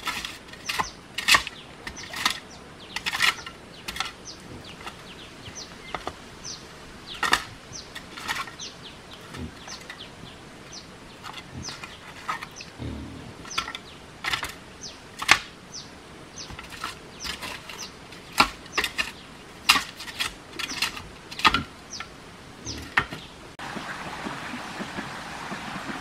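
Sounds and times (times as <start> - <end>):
bird chirps: 0.6 - 14.0, 21.9 - 23.4
steady rushing sound: 12.8 - 13.7.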